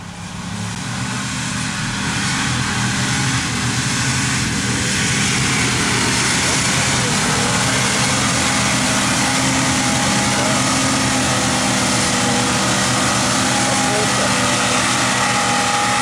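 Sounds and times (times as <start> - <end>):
engine running at high revs: 0.0 - 16.0.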